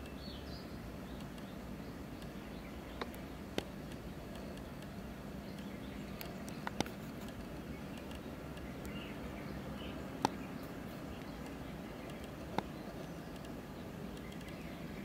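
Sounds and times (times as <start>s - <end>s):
distant bird chirps: 0.0s - 15.0s
steady low hum: 0.0s - 15.0s
sharp clicks: 1.1s - 1.6s, 2.2s - 9.1s, 10.2s - 14.7s.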